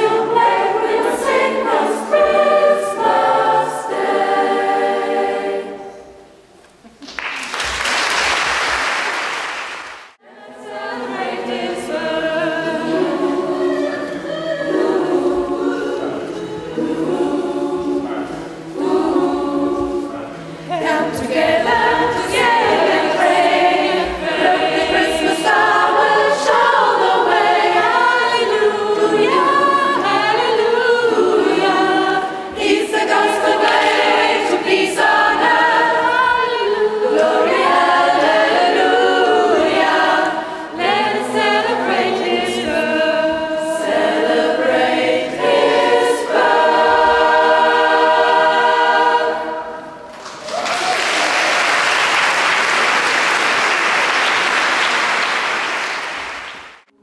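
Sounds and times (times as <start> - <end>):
choir singing: 0.0 - 6.5, 10.2 - 57.0
applause: 7.0 - 10.2, 50.1 - 56.9.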